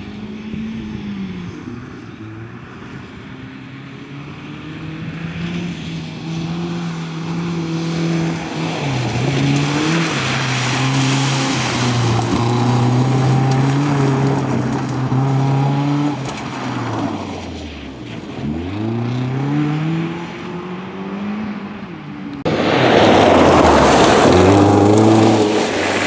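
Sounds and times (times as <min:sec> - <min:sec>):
rally car engine: 0:00.0 - 0:26.0
gravel hissing under tyres: 0:05.7 - 0:19.3, 0:22.5 - 0:26.0.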